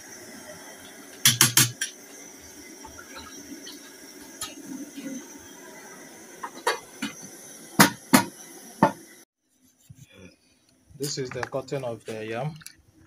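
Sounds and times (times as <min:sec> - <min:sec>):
steady background hiss: 0:10.9 - 0:12.6.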